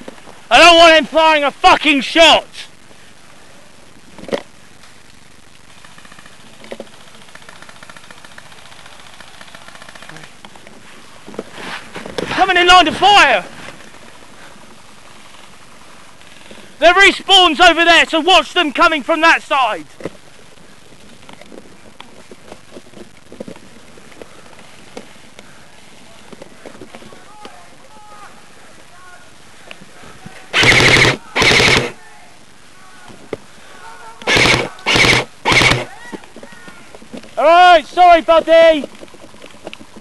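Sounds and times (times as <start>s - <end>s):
airsoft gun full-auto burst: 5.7s - 10.4s, 30.5s - 32.0s, 34.2s - 35.9s.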